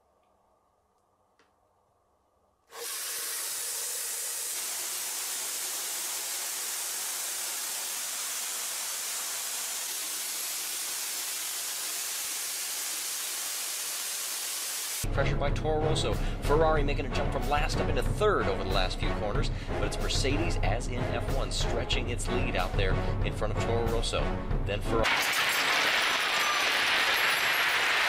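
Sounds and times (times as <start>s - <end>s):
marbles pouring down wooden run: 2.8s - 14.3s, 25.0s - 28.0s.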